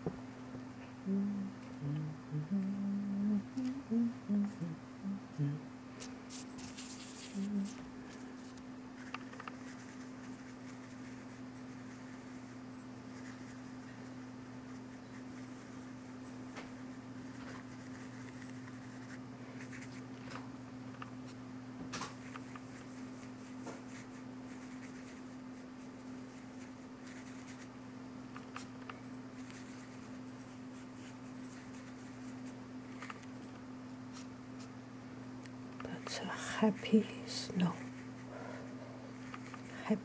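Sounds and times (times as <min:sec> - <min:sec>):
steady low hum: 0:00.0 - 0:40.0
paintbrush tapping and scratching paper: 0:06.3 - 0:07.8, 0:08.4 - 0:20.0, 0:29.4 - 0:33.3, 0:39.2 - 0:39.8.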